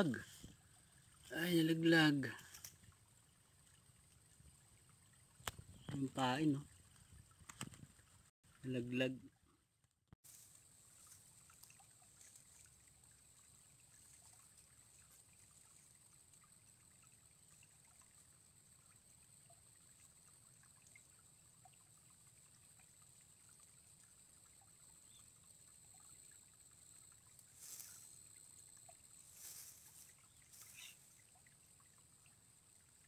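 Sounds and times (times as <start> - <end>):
soft hiss: 27.4 - 31.4.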